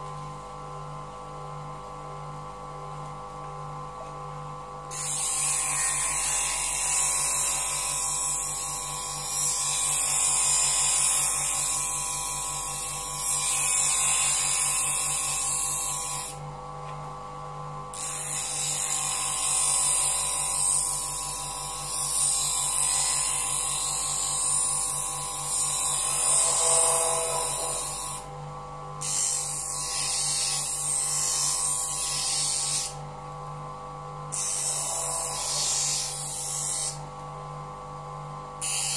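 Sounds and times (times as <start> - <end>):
bench grinder humming: 4.9 - 16.5, 17.9 - 28.4, 29.0 - 33.4, 34.2 - 38.9
blade grinding on wheel: 22.0 - 28.2.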